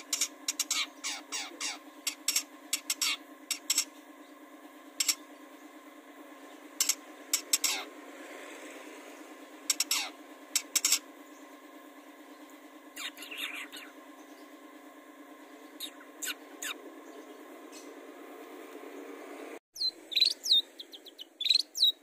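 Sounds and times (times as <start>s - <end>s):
bird harsh rasping calls: 0.0s - 3.8s, 6.8s - 8.0s, 9.7s - 11.0s, 13.0s - 14.0s, 15.7s - 17.9s.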